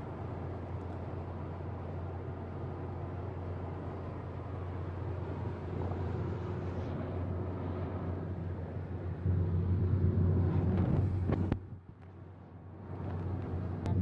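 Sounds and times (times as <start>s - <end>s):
engine and tyre drone: 0.0s - 14.0s
wind noise: 9.3s - 12.0s.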